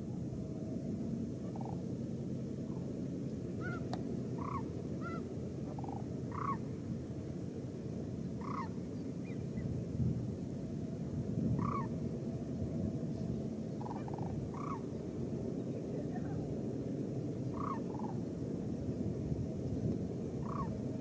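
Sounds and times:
cranes calling: 1.4s - 1.9s, 3.5s - 6.8s, 8.3s - 9.6s, 11.5s - 12.0s, 13.7s - 15.2s, 17.4s - 18.3s, 20.3s - 21.0s.

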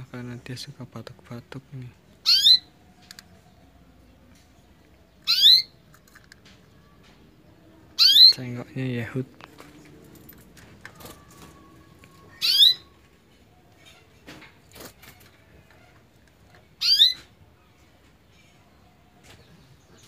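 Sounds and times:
canary trilling: 2.1s - 4.3s, 5.0s - 6.0s, 6.7s - 8.8s, 10.7s - 17.8s.

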